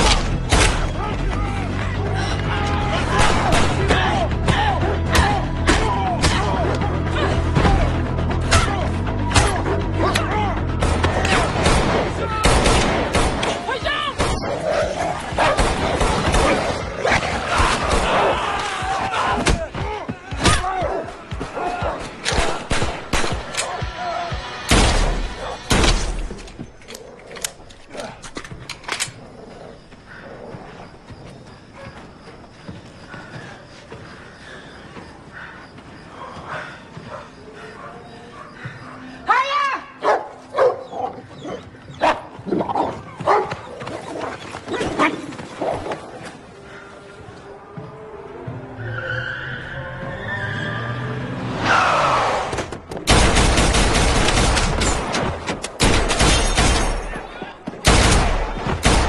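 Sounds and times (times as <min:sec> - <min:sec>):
film music: 0:00.0 - 0:44.2, 0:45.0 - 0:59.0
dog barking: 0:40.0 - 0:43.8
loud gunshot: 0:57.8 - 0:59.0.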